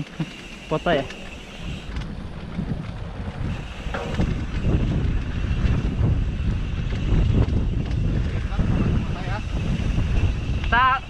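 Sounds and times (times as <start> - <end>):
bike rumbling and rattling on trail: 0.0 - 11.0
wind buffeting microphone: 1.0 - 11.0.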